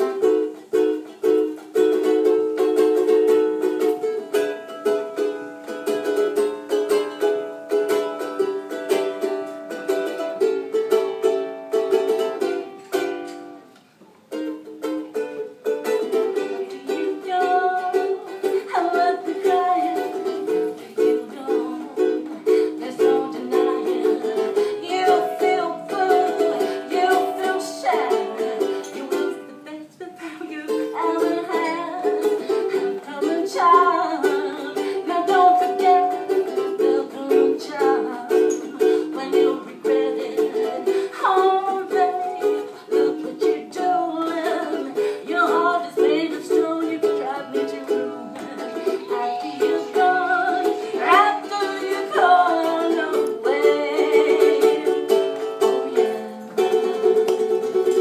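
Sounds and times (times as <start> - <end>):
woman singing: 0.0 - 1.4, 15.8 - 58.0
ukulele playing: 0.0 - 58.0.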